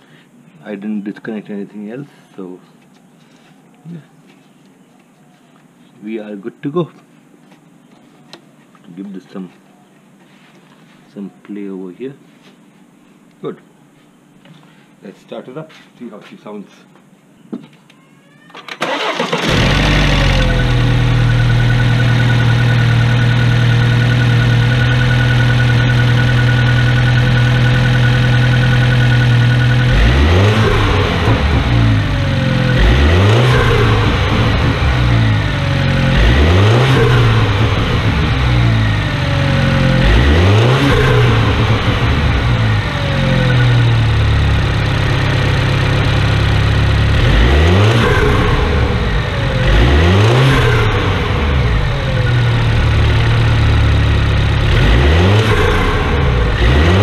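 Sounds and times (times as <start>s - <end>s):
car engine idling and revving: 18.8s - 57.0s.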